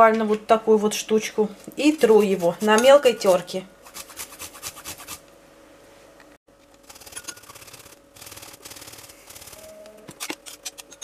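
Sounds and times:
ginger grated on metal grater: 1.8s - 5.2s.

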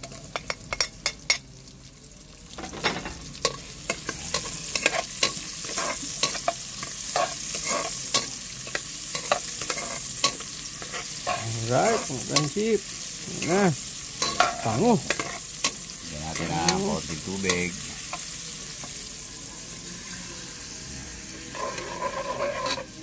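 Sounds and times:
onions sizzling in oil: 0.0s - 23.0s
metal spatula scraping pot: 2.6s - 12.6s, 14.2s - 15.6s, 21.5s - 23.0s.

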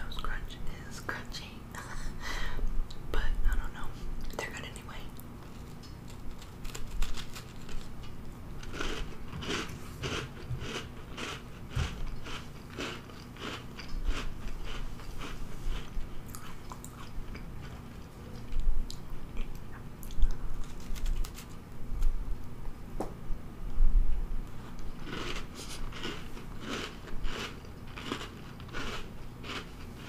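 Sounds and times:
crisp chewing crunches: 5.4s - 21.6s, 24.8s - 30.0s
person biting a cookie: 24.9s - 29.9s.

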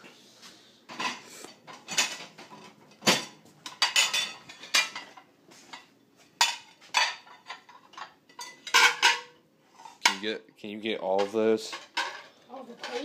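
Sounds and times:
dishes clinking and clattering: 0.9s - 10.2s, 11.2s - 13.0s.

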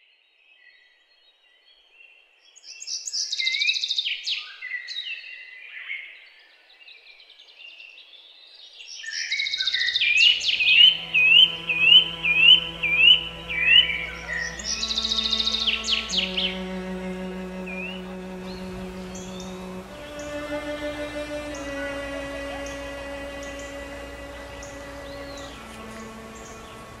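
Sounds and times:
songbirds chirping: 0.3s - 27.0s
music with long held notes: 10.2s - 27.0s.

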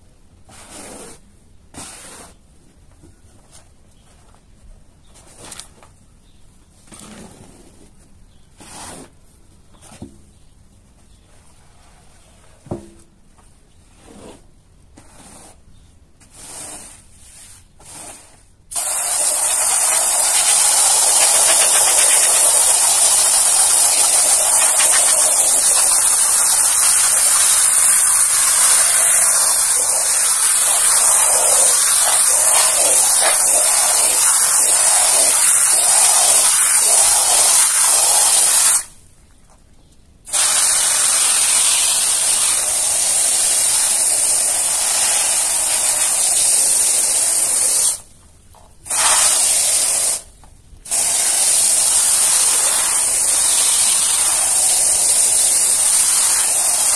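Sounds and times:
foam sprayer hissing: 18.7s - 38.9s, 50.9s - 56.9s.

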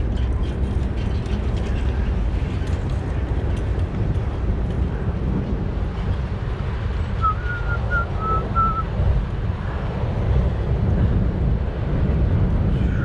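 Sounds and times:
steady low rumble: 0.0s - 13.0s
short whistle-like notes: 7.2s - 8.8s.

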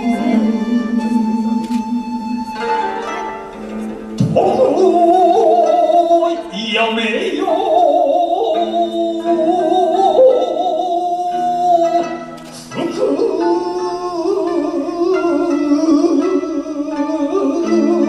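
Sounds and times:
sustained instrumental accompaniment: 0.0s - 18.0s
solo voice chanting with vibrato: 4.3s - 12.1s, 12.7s - 18.0s.

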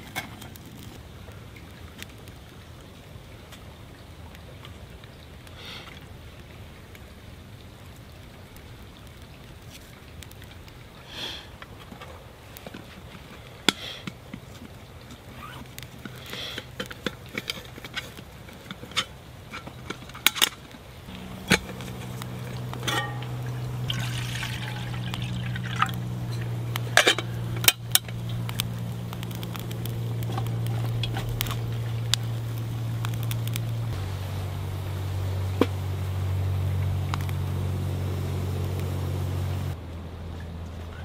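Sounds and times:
low steady hum: 19.4s - 41.0s
water poured into metal kettle: 21.1s - 35.0s
kettle lid clinks: 22.7s - 24.2s.

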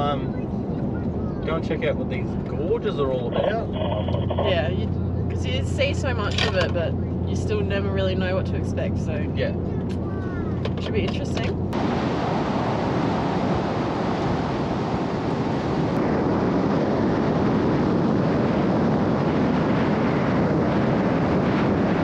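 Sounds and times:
tyre and road rumble: 0.0s - 13.4s.

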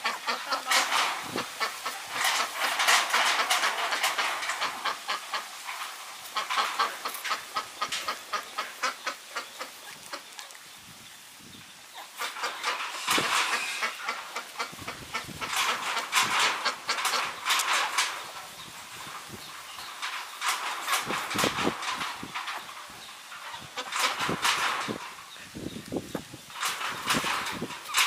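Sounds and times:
puppies squeaking and grunting: 12.0s - 25.1s.

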